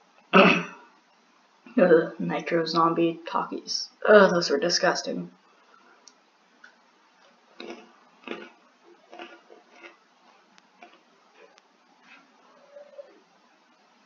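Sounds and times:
crunchy snack chewing: 7.6 - 12.3.

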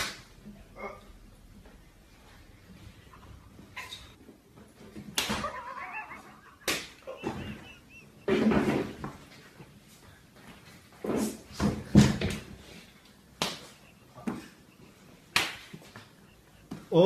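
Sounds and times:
hand slaps and thuds: 5.0 - 5.5, 6.6 - 7.4, 13.4 - 14.5, 15.3 - 15.9.

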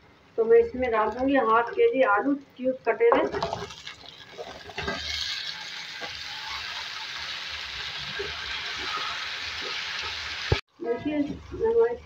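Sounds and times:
potatoes sizzling in hot oil: 3.3 - 10.6.

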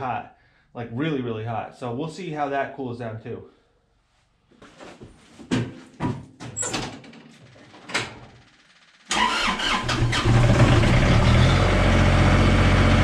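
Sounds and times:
diesel engine starting and running: 9.1 - 13.0.

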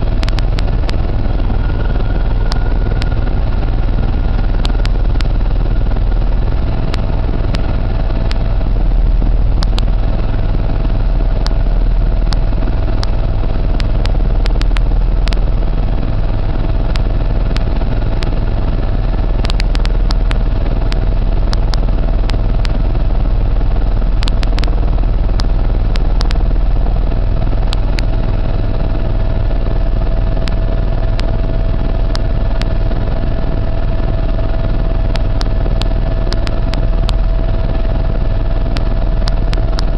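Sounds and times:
aircraft engine drone in cabin: 0.0 - 39.9
sharp clicks: 0.2 - 1.1, 9.6 - 9.9, 12.3 - 15.4, 19.4 - 22.8, 24.2 - 24.8, 25.4 - 26.4, 34.6 - 37.6, 38.7 - 39.9.

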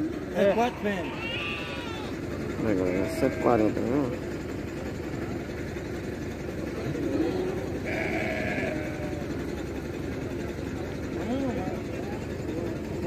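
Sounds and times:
murmur of voices: 0.0 - 13.0
young sheep bleating: 1.0 - 2.1, 2.8 - 3.7, 7.8 - 9.2.

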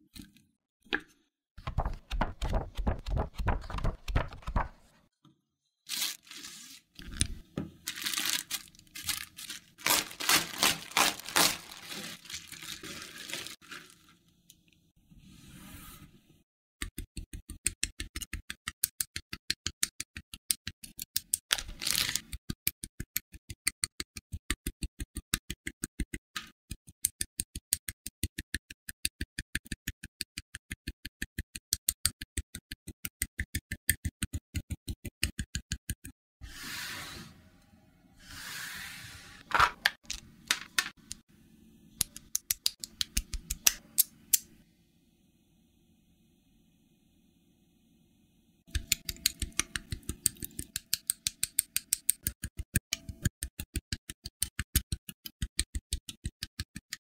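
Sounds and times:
booklet pages turning: 1.6 - 5.0, 5.9 - 14.1, 21.5 - 22.3
plastic bags crinkling: 5.9 - 7.2, 7.8 - 14.1, 21.5 - 22.2.

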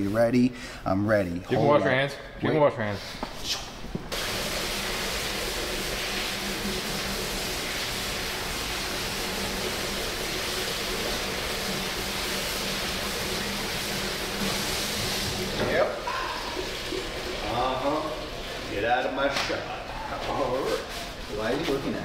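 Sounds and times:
water running from a tap: 4.1 - 21.8.

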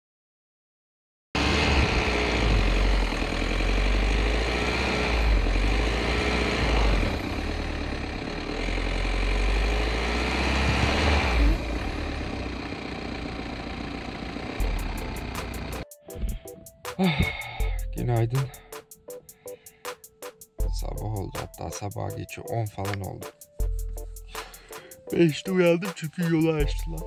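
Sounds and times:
vehicle engine running: 1.4 - 16.5.

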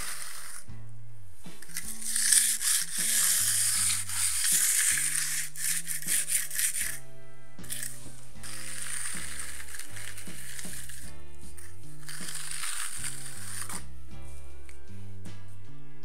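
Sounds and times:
background music: 0.0 - 16.0
trowel scraping wet concrete: 1.6 - 7.0, 7.6 - 13.9.

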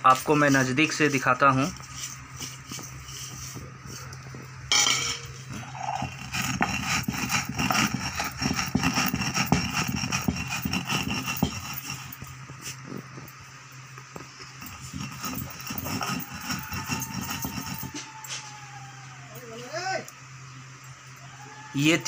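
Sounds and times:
stone scraping on stone: 0.3 - 13.0, 14.6 - 17.9.

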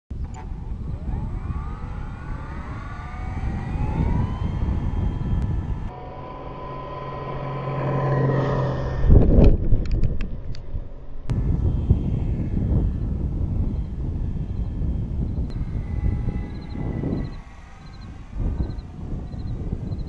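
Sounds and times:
model plane motor whining: 0.2 - 6.0, 11.3 - 20.0.

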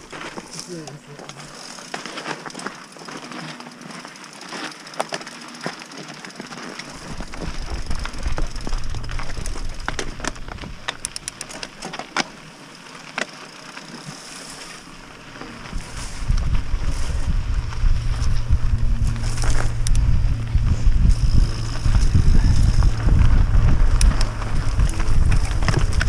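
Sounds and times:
bike clicking and rattling: 0.0 - 26.0
bike tyres on loose gravel: 0.0 - 26.0
wind on microphone: 7.1 - 11.4, 15.6 - 26.0.

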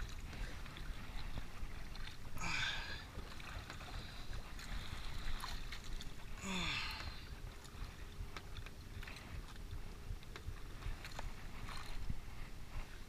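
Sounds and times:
water splashing surges: 0.0 - 8.4
choppy sea: 0.0 - 13.0
water washing against hull: 0.0 - 13.0
wind: 0.0 - 13.0.

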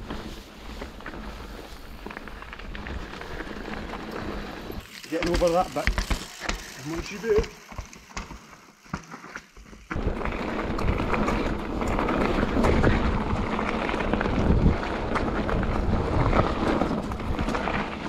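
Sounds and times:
bike tyres rolling on gravel: 0.0 - 18.0
bike clicks and knocks: 2.1 - 18.0
wind rushing over microphone: 9.9 - 18.0.

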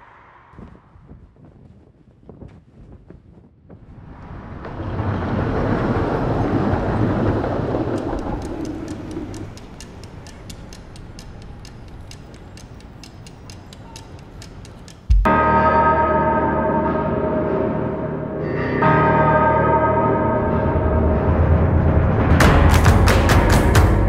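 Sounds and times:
rumbling whoosh: 3.8 - 9.8
fast clock-like ticking: 8.0 - 15.3.

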